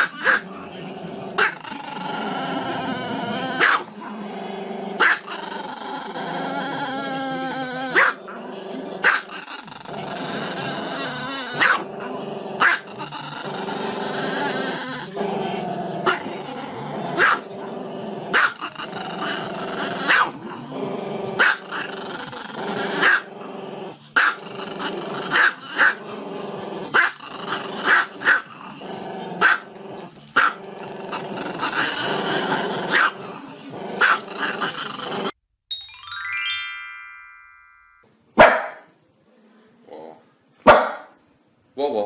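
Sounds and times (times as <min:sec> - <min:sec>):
dog howling growly: 0:00.8 - 0:08.9, 0:09.6 - 0:27.9
dog barking sharply: 0:38.4 - 0:38.9, 0:40.7 - 0:41.1.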